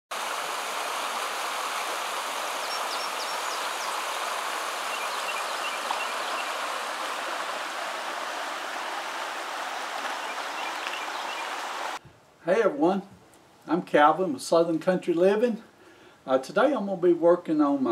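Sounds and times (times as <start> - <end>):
creek rippling over rocks: 0.1 - 12.0.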